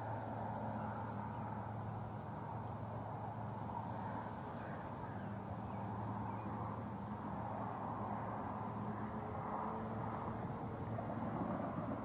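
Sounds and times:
wind rushing over microphone: 6.6 - 12.0.

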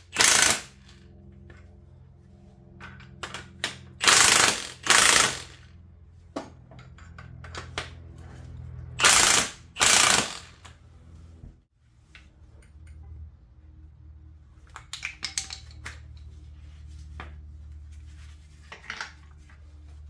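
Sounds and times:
ratchet wrench clicking: 0.1 - 0.9, 4.0 - 5.6, 9.0 - 10.8.

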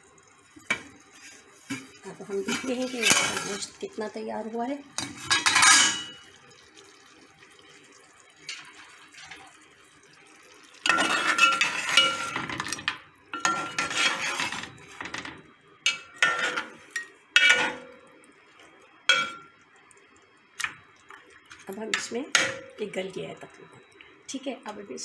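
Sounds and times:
metal ladle scraping in a pot: 1.1 - 3.7, 5.0 - 6.2, 10.8 - 12.8, 13.4 - 15.3, 15.9 - 17.9
ladle clinking against a pot: 5.3 - 6.2, 10.9 - 15.2, 15.9 - 18.0, 19.1 - 19.5.

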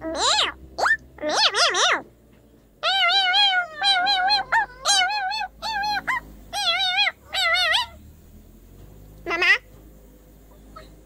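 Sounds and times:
animal high wavering cries: 0.0 - 2.1, 2.8 - 8.1.

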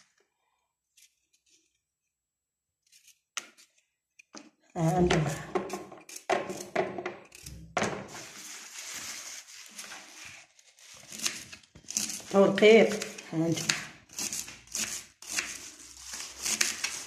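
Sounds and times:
person speaking: 4.8 - 5.8, 12.3 - 13.9.

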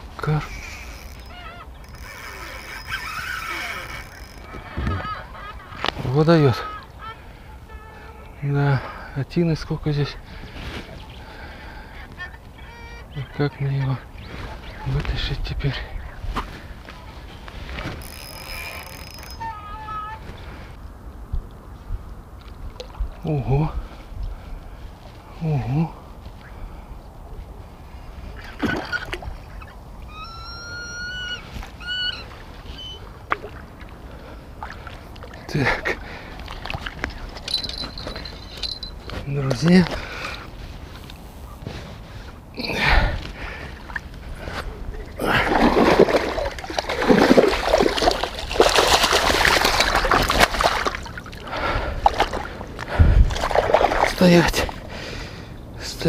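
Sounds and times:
fishing line whining under strain: 0.4 - 5.9, 17.7 - 20.4, 28.6 - 33.6, 36.4 - 39.1, 40.2 - 42.4
water splashing and sloshing: 22.3 - 23.3, 28.0 - 55.4.

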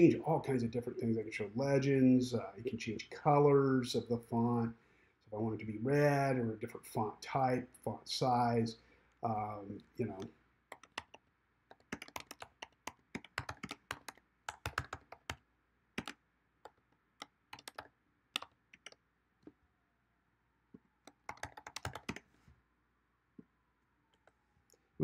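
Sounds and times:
typing on computer keyboard: 10.7 - 15.4, 16.0 - 19.0, 21.1 - 22.3.

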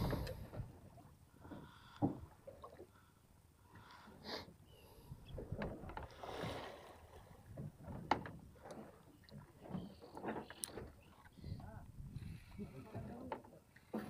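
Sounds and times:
water splashing against boat hull: 5.3 - 14.0.

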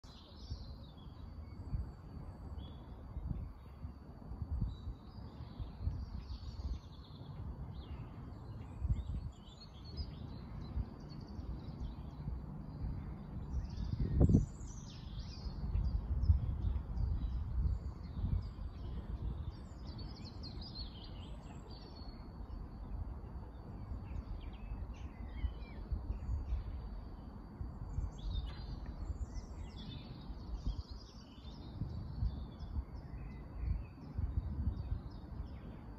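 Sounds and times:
small birds chirping: 4.6 - 35.9
gusty low rumble: 7.6 - 21.1, 27.6 - 35.7.

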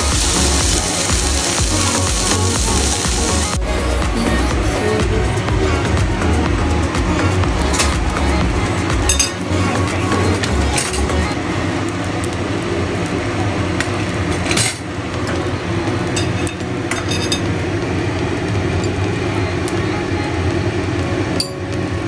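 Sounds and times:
low kitchen hum: 0.0 - 22.0
cookware and utensils clinking: 9.1 - 9.4, 10.4 - 11.2, 14.3 - 15.4, 16.1 - 17.6.

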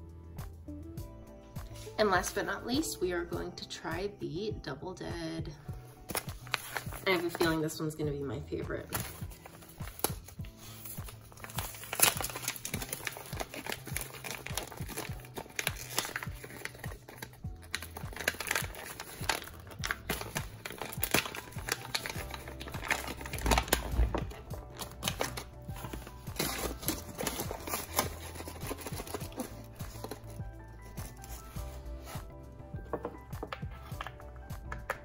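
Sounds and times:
background music: 0.0 - 35.0
foil coffee bag crinkling: 6.1 - 7.8, 8.8 - 32.3.

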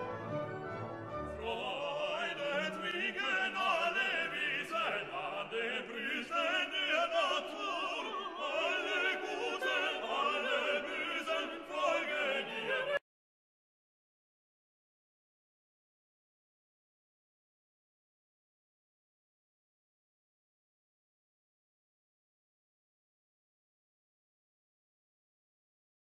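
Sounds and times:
orchestral music: 0.0 - 13.0
operatic singing voice: 1.4 - 13.0.

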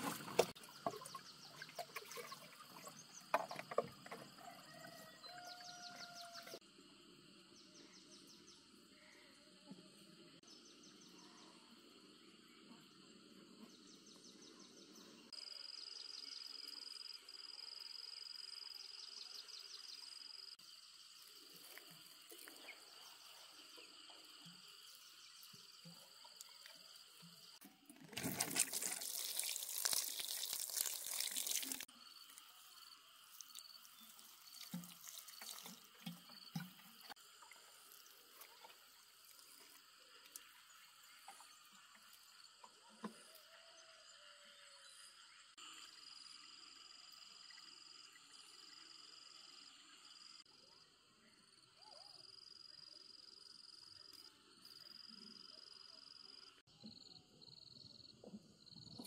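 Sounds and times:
water splashing: 0.0 - 3.9, 27.6 - 31.9, 33.3 - 39.6
water dripping: 27.9 - 32.5, 33.3 - 40.5
insects buzzing: 28.2 - 42.6.

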